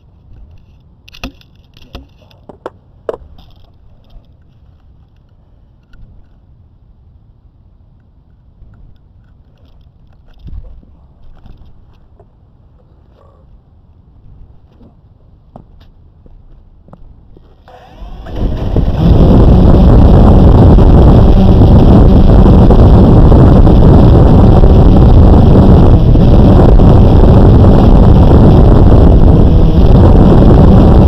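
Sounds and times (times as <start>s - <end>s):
propeller wind buffeting microphone: 16.2s - 31.0s
drone motors spinning: 17.4s - 31.0s.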